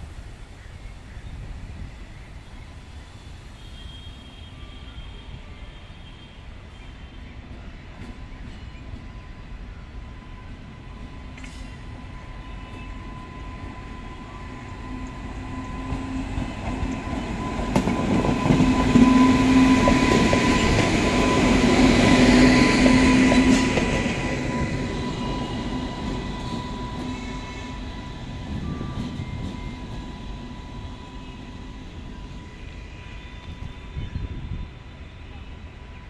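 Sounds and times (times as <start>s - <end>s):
train wheels rumbling over rails: 10.1s - 35.2s.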